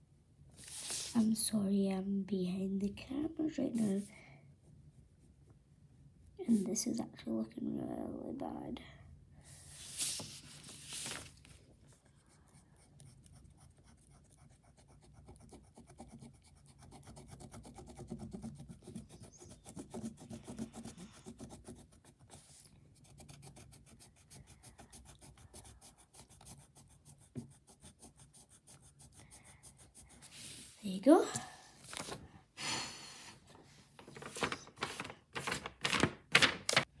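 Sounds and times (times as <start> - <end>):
pen scratching on paper: 12.1 - 30.8.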